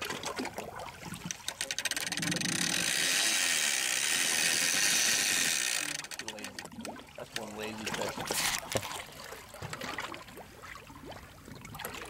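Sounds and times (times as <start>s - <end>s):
fishing reel clicking and buzzing: 1.2s - 7.5s.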